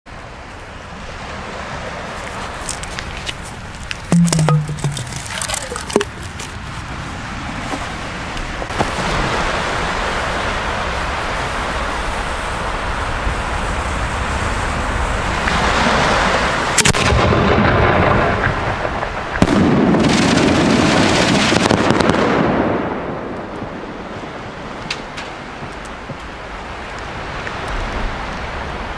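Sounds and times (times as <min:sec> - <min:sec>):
small crackling reports: 0:02.2 - 0:06.6
rising firework hiss: 0:08.7 - 0:16.8
sharp firework bangs: 0:16.8 - 0:22.8.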